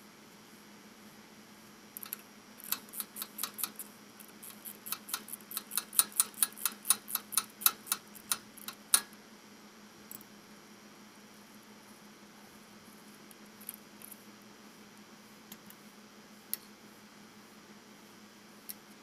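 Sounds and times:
rapid metallic clicks: 2.0s - 9.1s.

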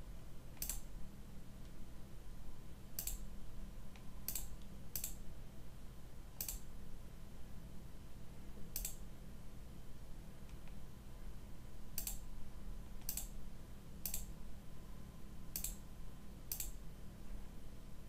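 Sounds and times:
faint low hum: 0.0s - 18.0s
computer mouse clicking: 0.6s - 0.9s, 3.0s - 3.3s, 3.9s - 5.2s, 6.4s - 6.7s, 8.7s - 9.0s, 10.4s - 10.8s, 12.0s - 12.2s, 13.0s - 13.4s, 14.0s - 14.3s, 15.5s - 15.8s, 16.5s - 16.8s.

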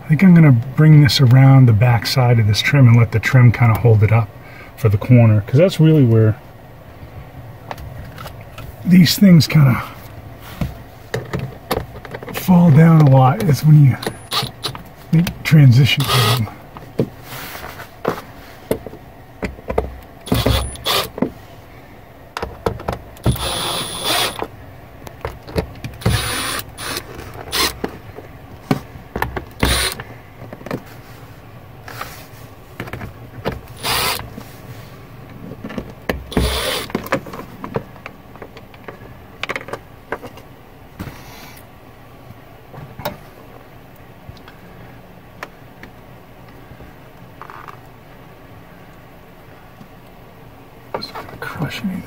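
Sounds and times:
handling knocks and clicks: 10.6s - 15.4s, 18.0s - 21.4s, 22.4s - 23.4s, 24.4s - 26.2s, 28.6s - 30.9s, 32.8s - 34.5s, 35.2s - 41.2s
cordless driver running: 14.0s - 15.3s, 15.9s - 16.5s, 20.3s - 21.2s, 23.2s - 24.5s, 26.0s - 27.9s, 29.6s - 30.0s, 33.8s - 34.3s, 36.3s - 37.0s.

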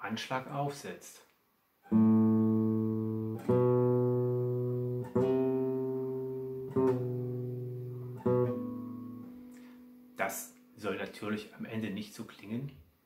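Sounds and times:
nylon-string guitar single notes: 1.9s - 10.7s.

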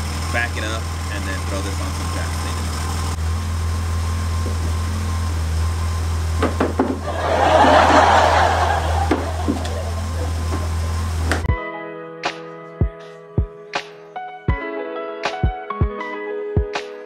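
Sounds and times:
car engine idling: 0.0s - 11.5s
plastic ramps knocking on concrete: 6.4s - 7.0s, 9.0s - 9.8s.

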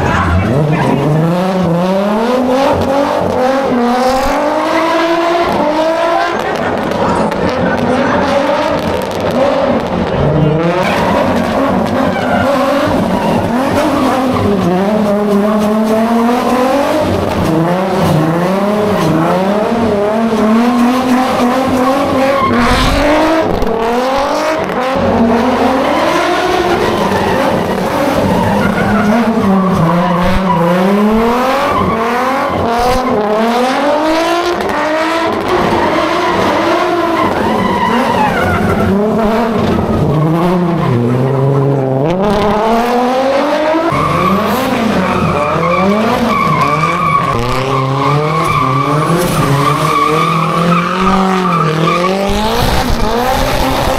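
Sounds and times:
car engine revving: 0.0s - 53.9s
tyres squealing: 20.7s - 23.5s, 24.5s - 33.2s, 43.8s - 52.8s.

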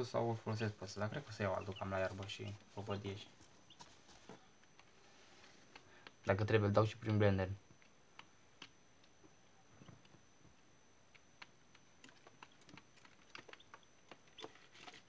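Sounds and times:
chicks pecking and scratching: 0.5s - 6.2s, 11.1s - 15.0s.

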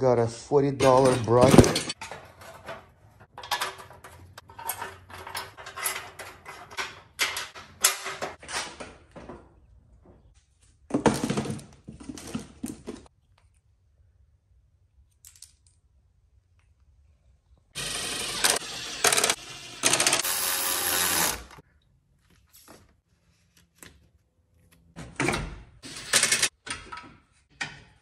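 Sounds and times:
bumper parts clattering and knocking: 0.8s - 10.3s, 10.9s - 13.1s.

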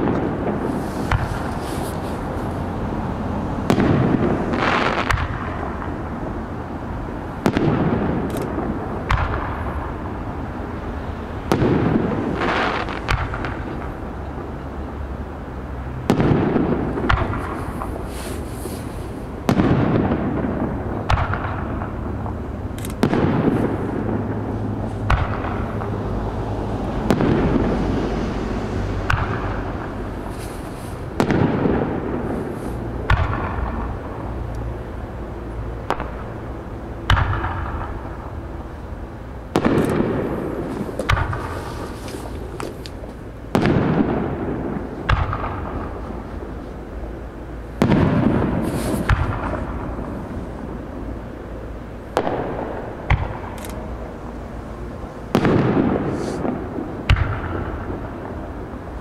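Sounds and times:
firework shells bursting: 0.0s - 2.4s, 39.5s - 46.3s
rolling echo: 0.0s - 18.1s, 18.8s - 59.0s.

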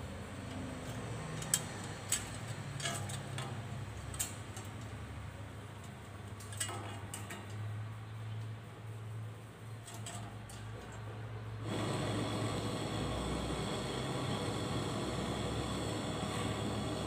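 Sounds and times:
refrigerator compressor humming: 11.6s - 17.0s.

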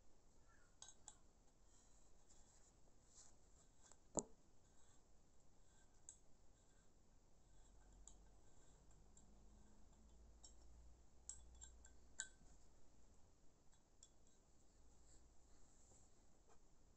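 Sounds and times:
small metal clicks and clinks: 0.8s - 1.3s, 7.7s - 12.4s.

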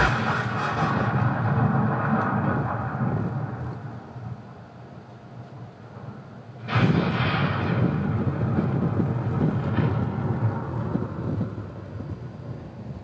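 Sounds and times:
thunder rolling: 0.0s - 3.6s.

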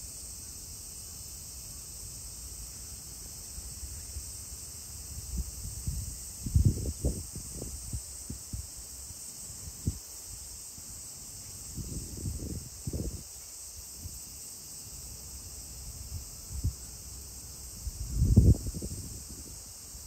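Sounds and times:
insects chirring: 0.0s - 20.0s
wind buffeting microphone: 5.2s - 8.7s, 17.8s - 19.6s.

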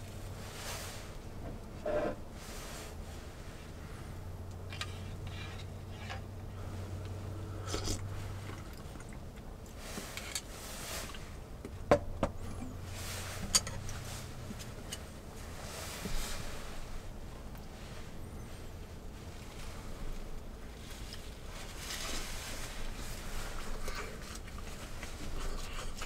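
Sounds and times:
low steady hum: 0.0s - 26.0s
chewing: 7.6s - 9.5s, 23.4s - 26.0s.

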